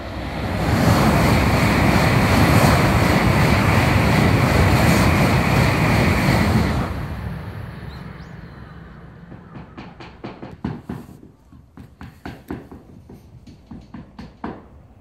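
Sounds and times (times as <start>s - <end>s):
high-speed train passing: 0.0s - 11.6s.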